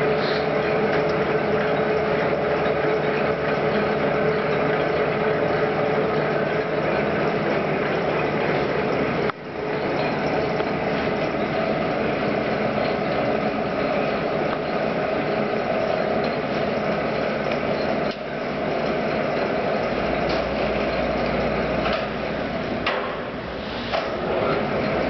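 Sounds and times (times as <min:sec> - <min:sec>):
lathe whirring: 0:00.0 - 0:25.0.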